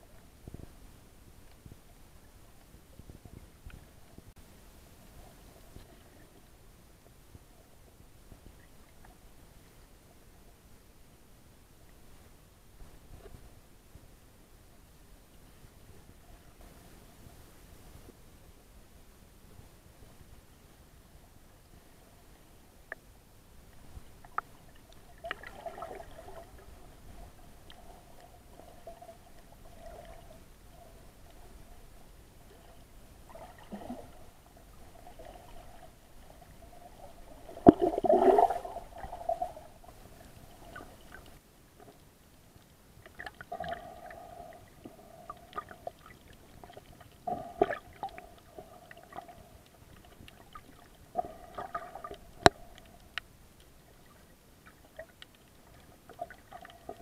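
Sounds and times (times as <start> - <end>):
underwater water gurgling: 23.6 - 42.0, 43.0 - 57.0.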